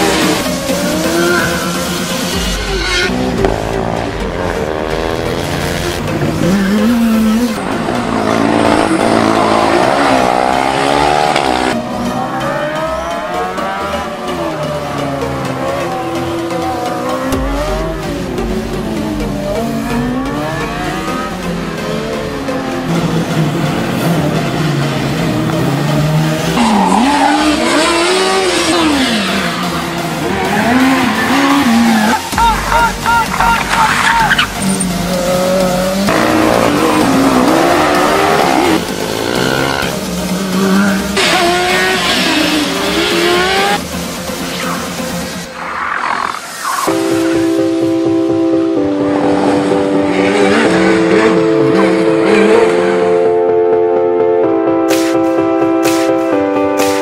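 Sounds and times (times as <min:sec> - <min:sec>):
race car engines revving: 0:00.0 - 0:53.4
tyres squealing: 0:30.2 - 0:36.0.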